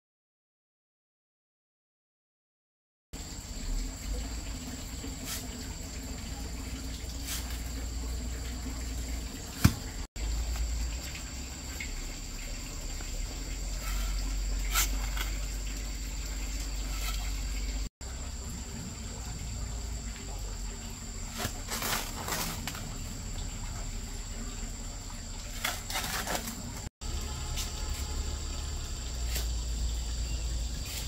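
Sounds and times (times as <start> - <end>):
high insect drone: 3.2 - 31.0
shovel scraping sand in wheelbarrow: 5.2 - 5.6, 7.2 - 7.7, 13.7 - 15.7, 16.5 - 17.6, 21.2 - 22.8, 25.5 - 26.9.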